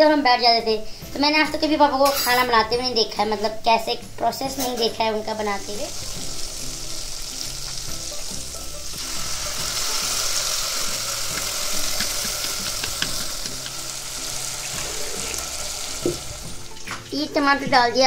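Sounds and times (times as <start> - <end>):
onions sizzling in hot oil: 5.3 - 17.1.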